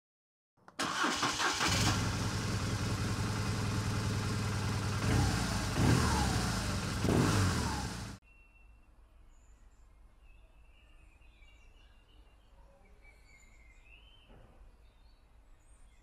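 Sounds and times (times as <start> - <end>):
motorcycle engine starting and revving: 0.8 - 8.2.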